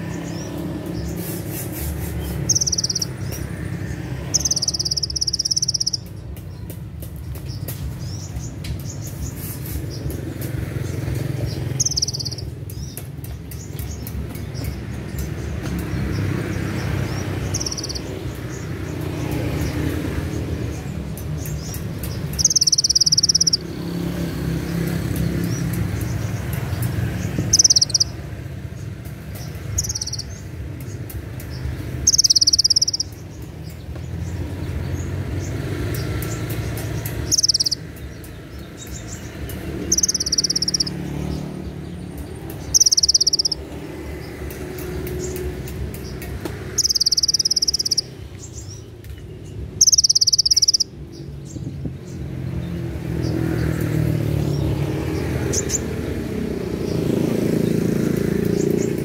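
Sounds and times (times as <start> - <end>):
bird singing shrill trills: 0.0 - 6.3, 10.8 - 13.0, 13.6 - 24.0, 24.7 - 51.6, 54.0 - 59.0.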